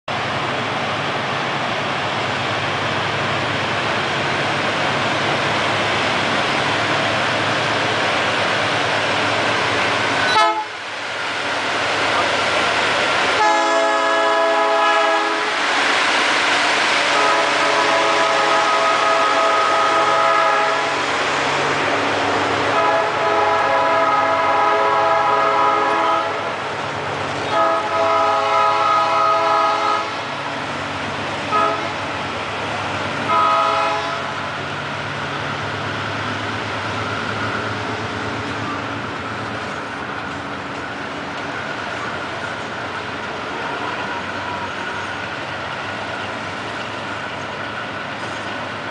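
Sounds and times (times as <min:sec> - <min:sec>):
locomotive air horn blasts: 0:10.3 - 0:10.8, 0:13.4 - 0:15.5, 0:17.1 - 0:20.9, 0:22.7 - 0:26.4, 0:27.5 - 0:30.3, 0:31.5 - 0:32.0, 0:33.3 - 0:34.4.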